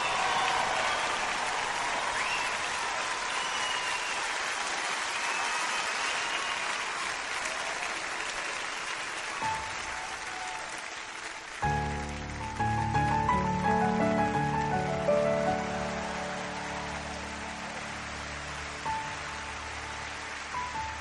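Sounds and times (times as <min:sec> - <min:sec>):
audience applauding and cheering: 0:00.0 - 0:21.0
grand piano playing: 0:09.4 - 0:21.0.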